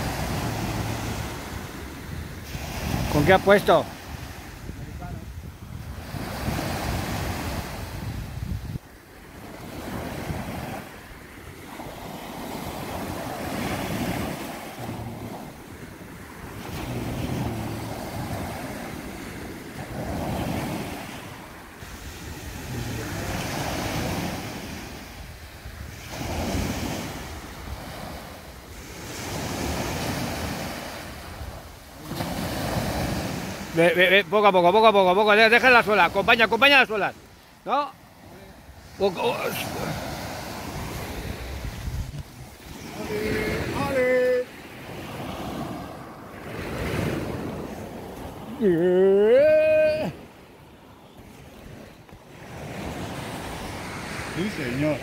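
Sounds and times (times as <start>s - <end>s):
wind rumbling on microphone: 0.0s - 33.7s, 39.8s - 48.7s
surf breaking on a beach: 0.0s - 55.0s.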